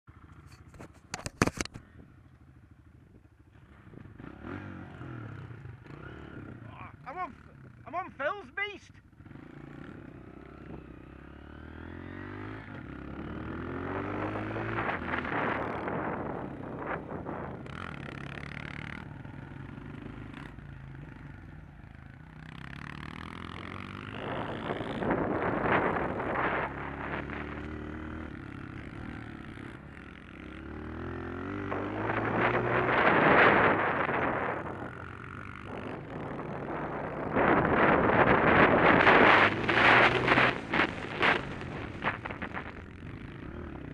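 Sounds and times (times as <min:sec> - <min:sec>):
motorbike engine revving: 0:03.6 - 0:08.4, 0:09.1 - 0:43.9
wind noise on microphone: 0:13.7 - 0:17.8, 0:24.0 - 0:28.3, 0:31.5 - 0:43.2.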